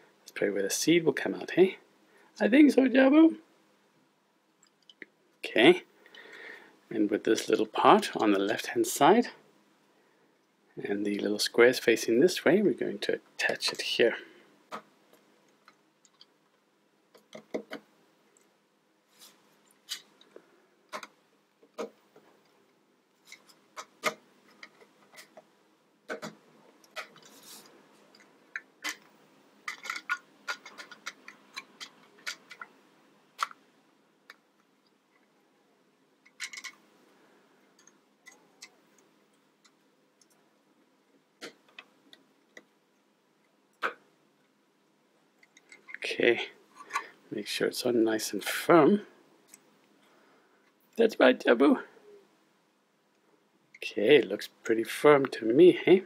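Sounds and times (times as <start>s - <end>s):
plastic bricks clicking: 28.2s - 32.7s, 33.4s - 33.6s, 36.2s - 36.8s.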